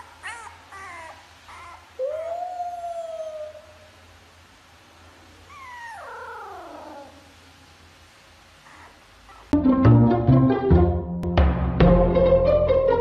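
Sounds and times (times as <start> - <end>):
puppy whining: 0.0 - 4.0, 5.4 - 7.4, 8.6 - 9.6.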